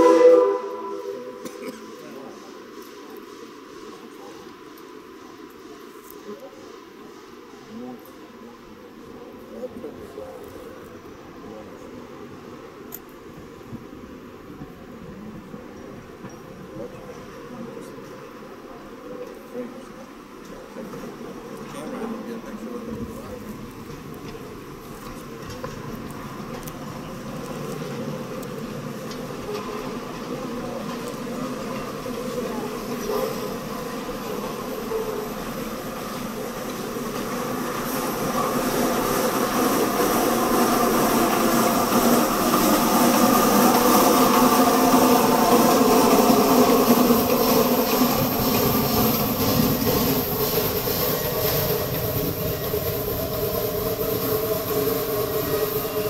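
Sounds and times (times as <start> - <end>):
train wheels rumbling on rails: 0.0 - 56.0
steam locomotive exhaust chuffs: 23.4 - 56.0.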